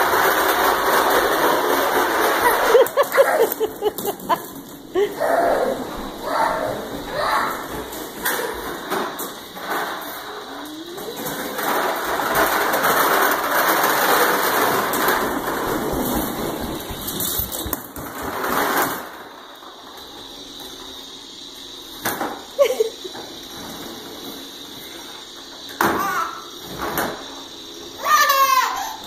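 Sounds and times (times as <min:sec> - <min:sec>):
toy lawnmower rattling on wooden floor: 0:00.0 - 0:05.1, 0:05.8 - 0:19.9.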